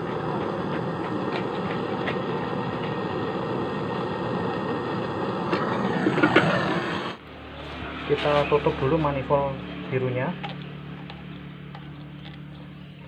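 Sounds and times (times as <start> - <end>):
gas torch hissing: 0.0 - 9.6.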